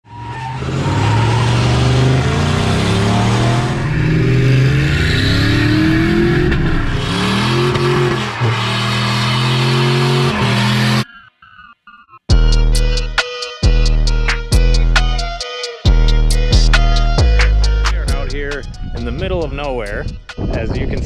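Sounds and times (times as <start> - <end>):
pickup truck engine accelerating: 0.1 - 11.2.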